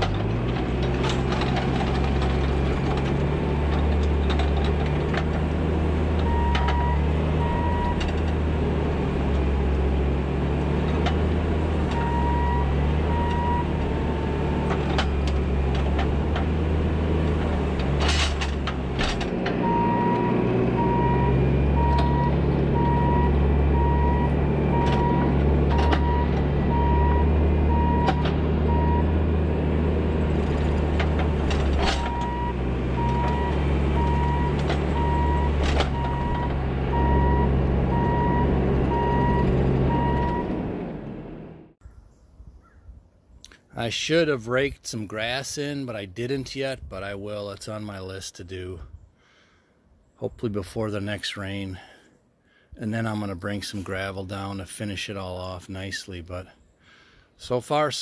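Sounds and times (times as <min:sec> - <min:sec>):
diesel engine running: 0:00.0 - 0:41.8
backup alarm beeping: 0:06.3 - 0:08.0, 0:12.0 - 0:13.8, 0:19.6 - 0:29.2, 0:32.0 - 0:40.6.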